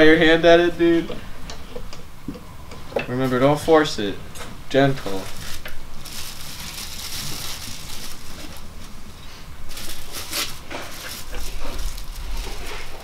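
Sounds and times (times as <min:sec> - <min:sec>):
rustling and scraping of pieces: 0:05.0 - 0:13.0.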